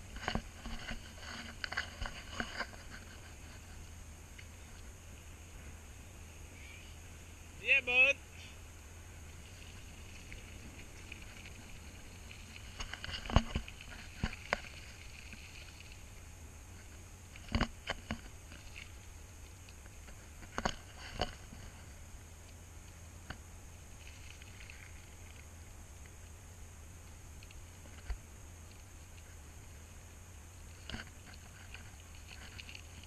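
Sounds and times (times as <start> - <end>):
low steady hum: 0.0 - 33.0
bicycle clicks and knocks over bumps: 10.6 - 15.8.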